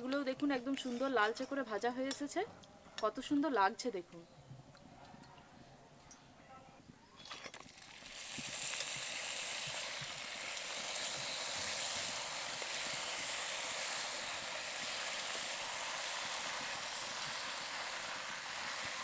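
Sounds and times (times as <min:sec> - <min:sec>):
food deep-frying in hot oil: 0:07.5 - 0:19.0.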